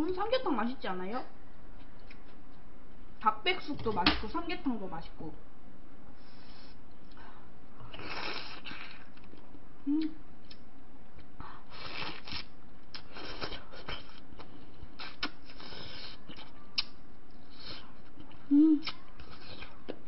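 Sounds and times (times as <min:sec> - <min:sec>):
chewing: 0:10.4 - 0:20.0.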